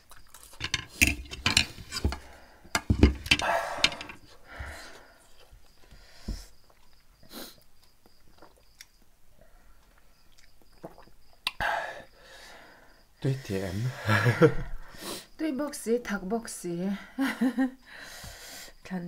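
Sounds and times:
chewing: 0.0 - 0.6, 9.8 - 11.6
fork scraping on a plate: 0.6 - 2.3
glass knocking: 0.6 - 4.2.

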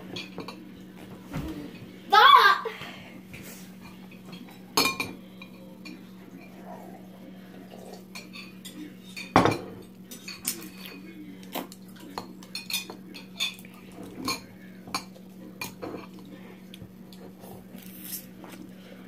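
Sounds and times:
chopsticks clicking and scraping bowl: 10.1 - 18.7.

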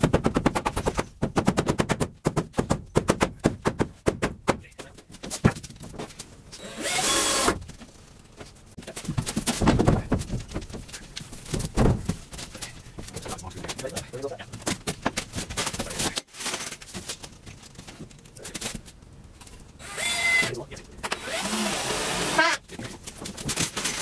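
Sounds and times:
drill high whir: 6.6 - 7.6, 19.8 - 20.5, 21.1 - 22.6
power drill rattling: 6.6 - 7.6, 19.8 - 22.4.

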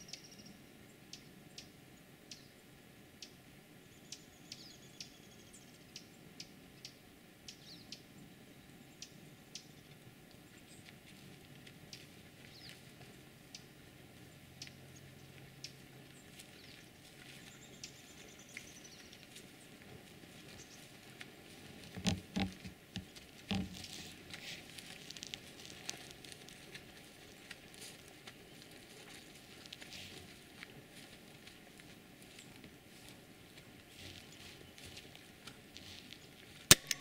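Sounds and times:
faint rustling: 15.0 - 36.8
soft thumps: 21.9 - 23.9
small clicks: 36.7 - 37.0.

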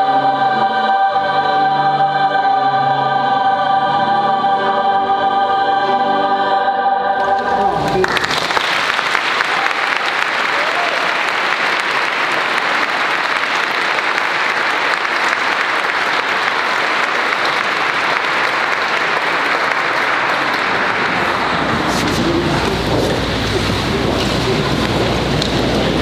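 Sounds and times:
audience applauding: 7.3 - 26.0.

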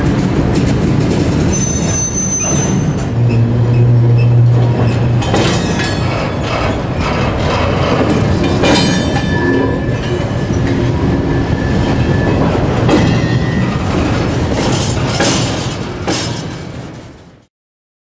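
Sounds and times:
wheels clacking over rail joint: 0.0 - 17.2
freight wagon wheels rumbling: 0.0 - 17.3
faint wheel squeal: 1.5 - 4.4.

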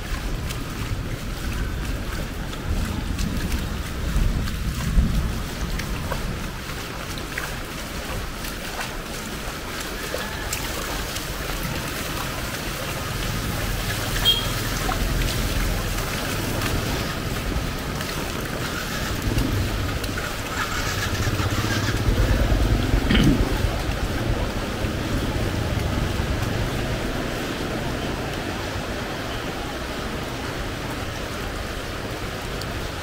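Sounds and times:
wind noise on microphone: 0.0 - 8.6
heavy rain on street: 0.0 - 33.0
motor traffic rumble: 0.0 - 33.0.

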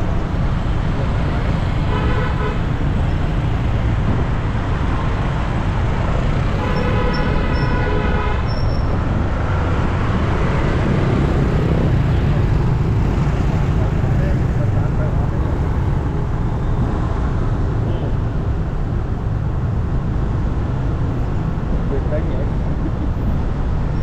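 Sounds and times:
road traffic rumble: 0.0 - 24.0
vehicle horns: 1.8 - 2.8, 6.5 - 8.9.

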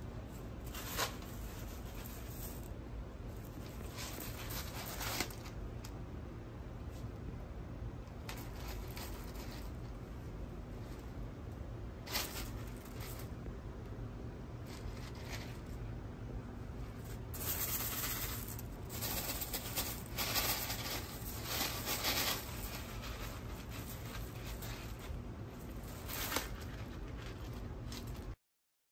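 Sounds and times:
dry macaroni rattling in plastic tub: 17.3 - 28.3.

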